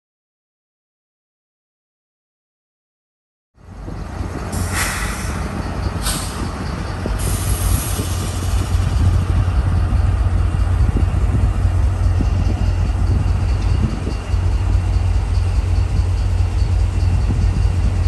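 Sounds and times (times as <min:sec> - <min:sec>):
diesel locomotive rumble: 0:03.6 - 0:18.0
air hisses: 0:04.6 - 0:06.5, 0:07.2 - 0:08.8.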